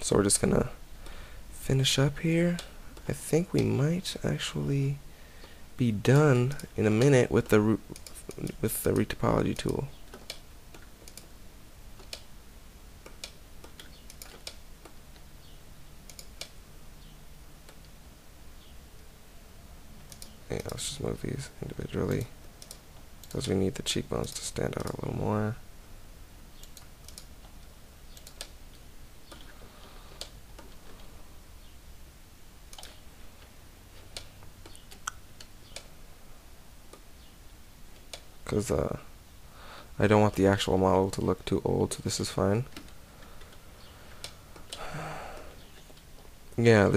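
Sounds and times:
faint low hum: 0:00.0 - 0:46.9
keyboard and mouse clicks: 0:07.9 - 0:11.3, 0:12.0 - 0:12.3, 0:13.0 - 0:15.3, 0:16.1 - 0:16.6, 0:20.0 - 0:20.8, 0:22.1 - 0:23.6, 0:24.3 - 0:25.1, 0:26.6 - 0:31.1, 0:32.7 - 0:33.0, 0:34.0 - 0:35.9
mouse and keyboard clicks: 0:20.1 - 0:20.8.

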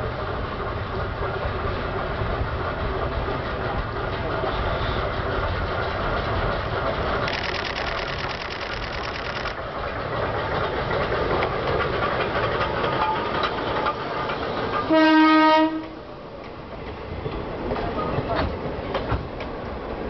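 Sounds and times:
diesel locomotive engine: 0:00.0 - 0:20.0
wheels clicking over rail joints: 0:06.0 - 0:15.0
train horn blast: 0:14.9 - 0:16.0.

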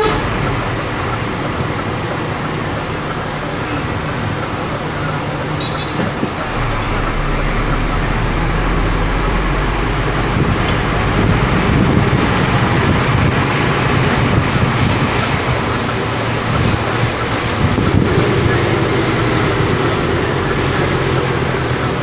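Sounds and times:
diesel engine running: 0:00.0 - 0:22.0
tyre and wind noise: 0:09.4 - 0:18.5.

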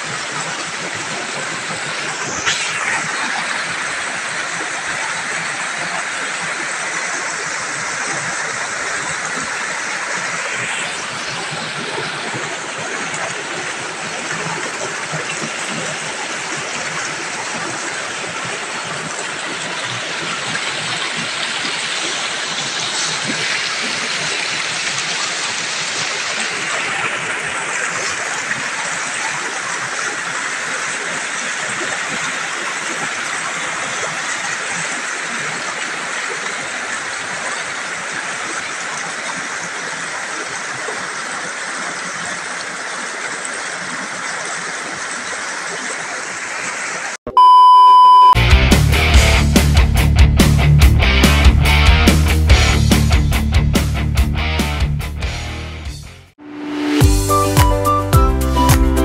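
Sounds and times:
river water rushing over boulders: 0:00.0 - 0:47.2.

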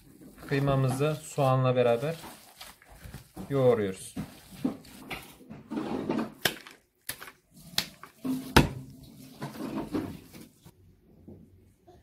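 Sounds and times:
wet squelching of kneaded meat: 0:00.0 - 0:05.4.

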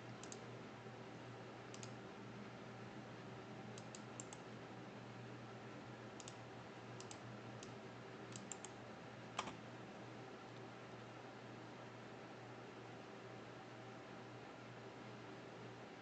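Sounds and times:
faint steady hum: 0:00.0 - 0:16.0
computer mouse clicking: 0:00.2 - 0:00.5, 0:01.7 - 0:02.0, 0:03.8 - 0:04.4, 0:06.2 - 0:06.4, 0:07.0 - 0:08.8, 0:09.4 - 0:09.6.

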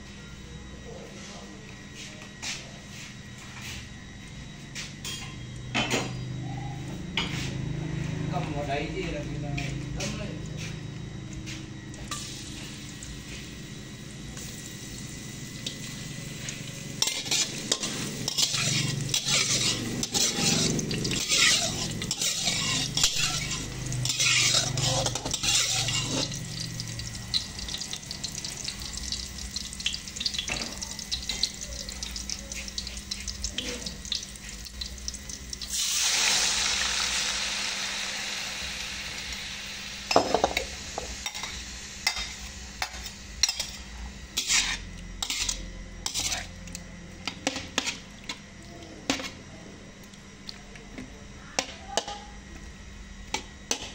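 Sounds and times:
garlic sizzling in oil: 0:11.9 - 0:43.8, 0:44.4 - 0:46.4
loud burst of sizzling: 0:11.9 - 0:46.4
metal spatula scraping wok: 0:17.0 - 0:26.4, 0:44.4 - 0:46.5.

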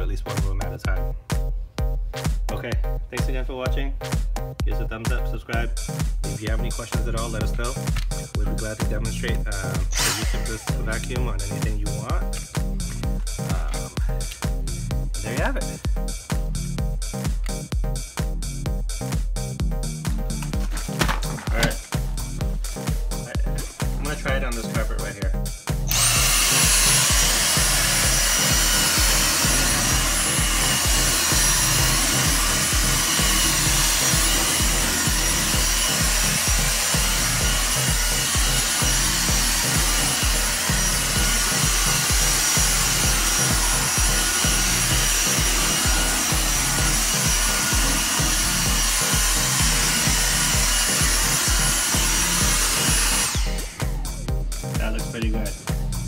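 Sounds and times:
vacuum cleaner whining: 0:09.3 - 0:12.1, 0:25.9 - 0:54.1.

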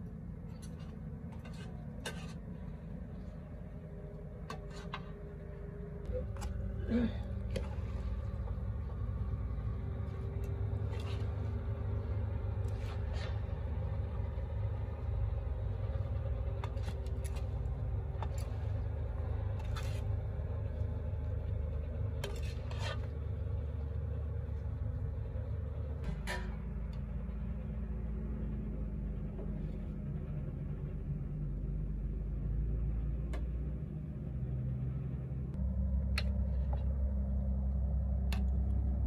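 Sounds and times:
low rumble: 0:00.0 - 0:39.0
metal ladle scraping a pot: 0:00.6 - 0:02.5, 0:04.5 - 0:05.2, 0:10.4 - 0:11.6, 0:22.2 - 0:23.2.

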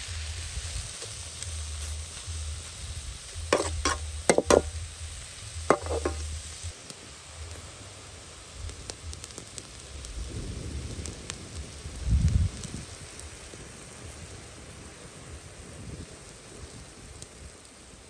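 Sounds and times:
food hissing in a wok: 0:00.0 - 0:18.0
metal spatula scraping a wok: 0:03.5 - 0:04.7, 0:05.7 - 0:06.4.

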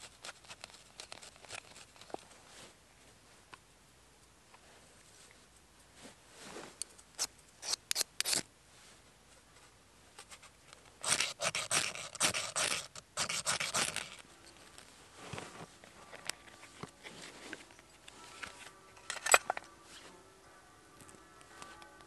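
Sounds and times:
striker scraping ferrocerium rod: 0:07.2 - 0:08.4, 0:10.2 - 0:14.2.

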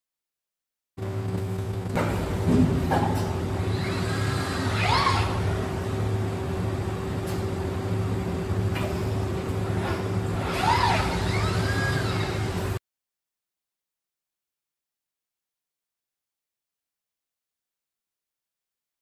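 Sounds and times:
steady machine hum: 0:01.0 - 0:12.8
servo motors whining: 0:03.6 - 0:05.7, 0:09.7 - 0:12.8.

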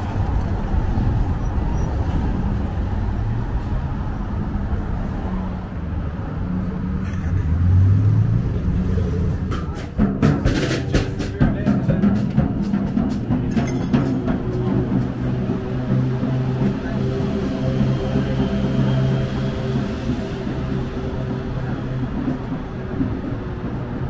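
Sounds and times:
heavy engine hum: 0:00.0 - 0:24.0
vehicle engines passing: 0:00.0 - 0:24.0
percussive music with drums: 0:08.9 - 0:24.0
wood-block-like beat: 0:09.2 - 0:24.0.

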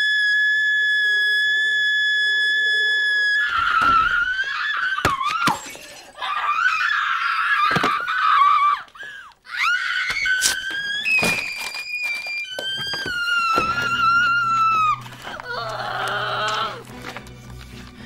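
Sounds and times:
person screaming: 0:13.2 - 0:16.8.

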